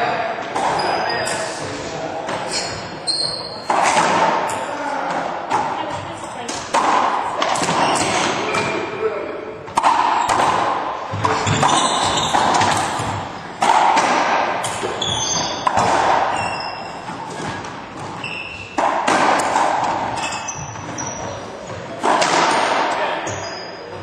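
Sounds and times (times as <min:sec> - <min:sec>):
racquetball impacts echoing: 0:00.0 - 0:24.0
sneaker squeaks on hardwood: 0:02.4 - 0:04.7, 0:07.6 - 0:08.8, 0:11.2 - 0:13.2, 0:14.6 - 0:18.9, 0:19.9 - 0:22.0, 0:23.2 - 0:24.0.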